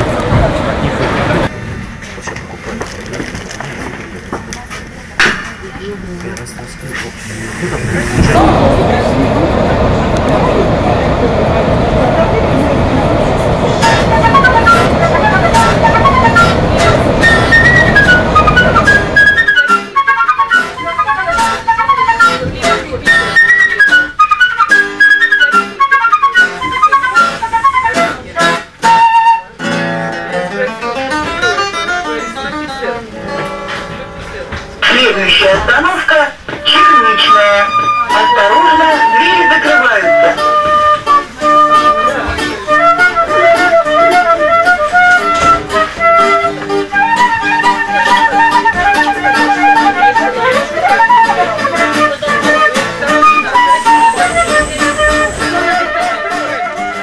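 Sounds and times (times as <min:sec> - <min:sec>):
flute melody: 0:07.7 - 0:34.0, 0:34.8 - 0:57.0
acoustic guitar chords: 0:13.7 - 0:57.0.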